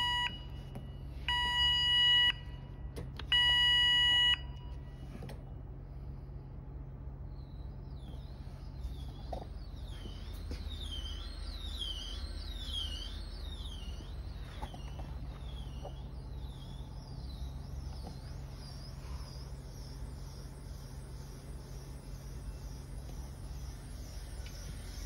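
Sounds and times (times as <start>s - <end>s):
motor hum: 0.0s - 25.0s.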